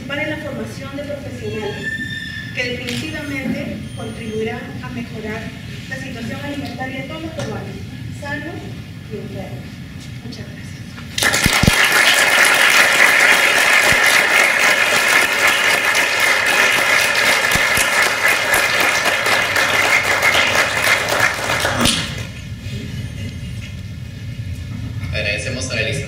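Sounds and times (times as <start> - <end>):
audience applause: 11.2 - 22.3.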